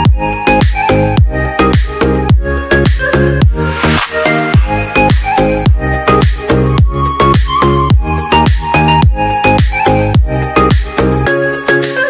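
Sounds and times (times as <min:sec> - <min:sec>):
punchy kick drum: 0:00.0 - 0:03.6, 0:04.6 - 0:10.9
hissing sweep: 0:03.5 - 0:06.8.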